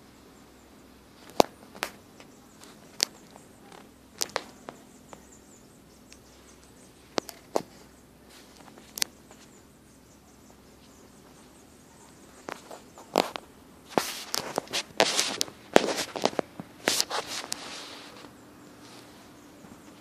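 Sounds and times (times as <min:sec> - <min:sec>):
rustles and knocks against bedding: 0:10.4 - 0:20.0.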